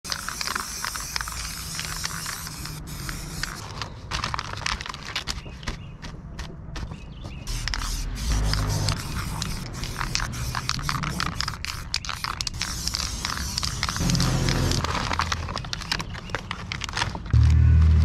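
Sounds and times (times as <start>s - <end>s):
paper crackling and rustling: 0.0s - 6.6s, 7.5s - 17.4s
spray paint can hissing: 0.1s - 3.7s, 7.5s - 14.8s.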